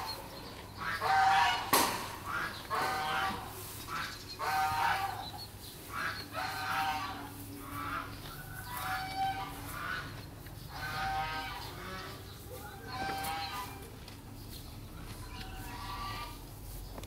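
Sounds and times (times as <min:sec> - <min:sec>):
poultry calling: 0:00.0 - 0:16.8.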